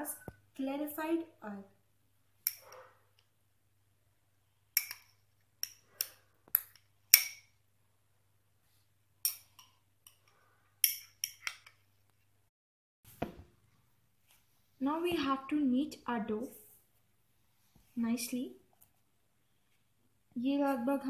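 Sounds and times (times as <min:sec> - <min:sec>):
metal spoon clinking glass bowl: 0:10.8 - 0:11.8.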